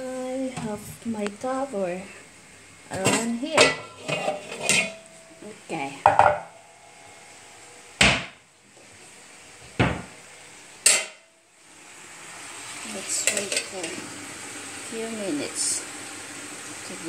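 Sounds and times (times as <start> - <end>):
metal pots and lid clattering: 2.9 - 5.2, 6.0 - 6.6, 10.8 - 11.2, 13.2 - 14.0.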